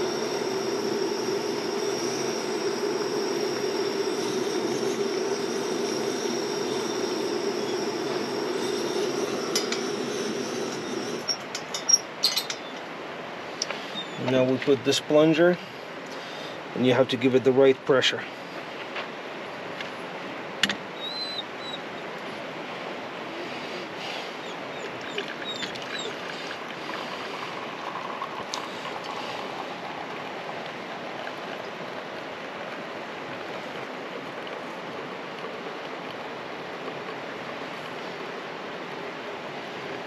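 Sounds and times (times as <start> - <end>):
outdoor rushing noise: 0.0 - 11.8
high bird chirps: 21.0 - 21.8.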